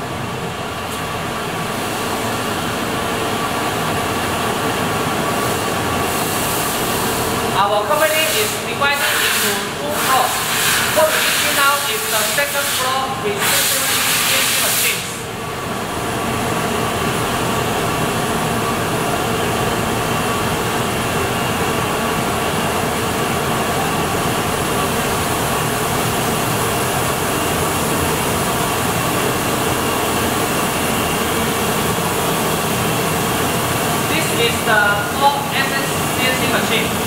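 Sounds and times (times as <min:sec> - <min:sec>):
machine shop din: 0:00.0 - 0:15.5
faint steady machine whine: 0:00.0 - 0:37.0.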